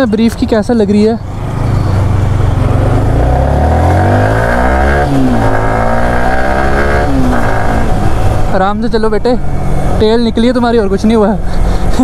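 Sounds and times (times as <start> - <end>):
motorcycle engine accelerating: 1.2 - 8.9.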